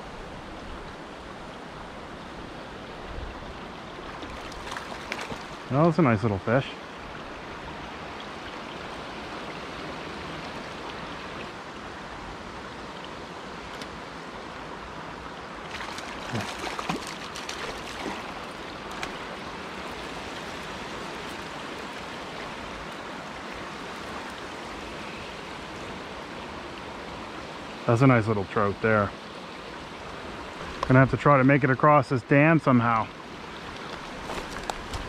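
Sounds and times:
creek water rushing: 0.0s - 35.0s
fish splashing at surface: 4.2s - 5.6s, 15.7s - 22.0s.

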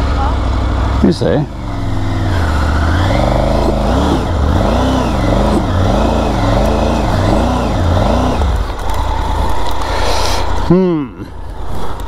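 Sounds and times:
motorcycle engine revving: 0.0s - 9.8s.

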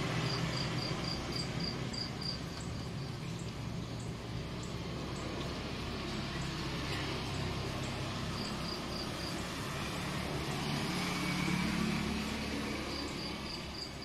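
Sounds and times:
insect chirping: 0.1s - 5.3s, 7.8s - 9.4s, 12.8s - 14.0s.

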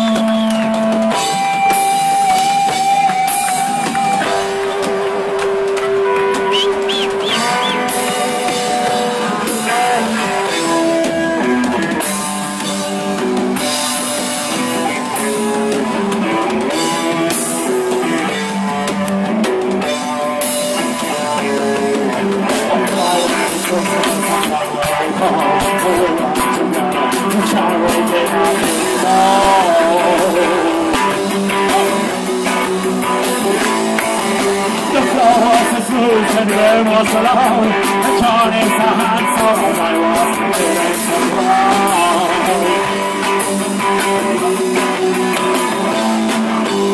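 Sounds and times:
drum kit: 0.0s - 46.9s
electric guitars: 0.0s - 46.9s
person singing: 21.0s - 46.9s.

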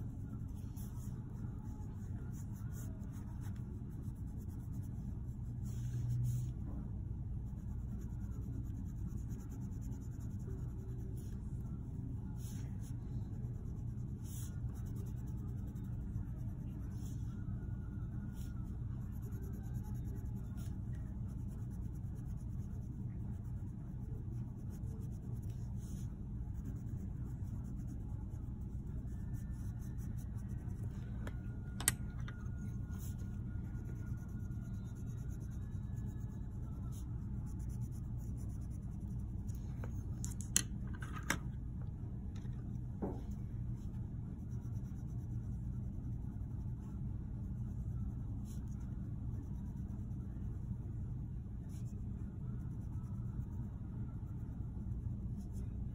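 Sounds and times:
steady low hum: 0.0s - 55.9s
pencils scratching on paper: 7.4s - 17.4s.

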